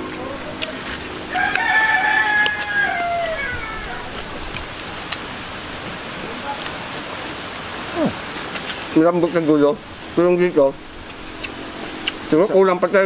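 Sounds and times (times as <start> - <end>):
rooster crowing: 1.2 - 4.4.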